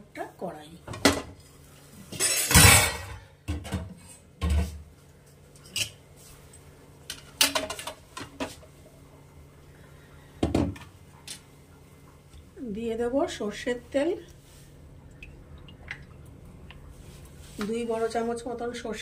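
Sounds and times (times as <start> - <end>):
metal cookware clattering: 2.1 - 3.9.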